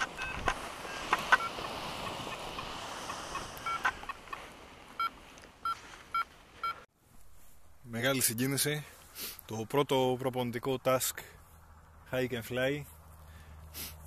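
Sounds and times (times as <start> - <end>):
variometer short electronic beeps: 0.0 - 1.5
wind hiss: 0.0 - 6.6.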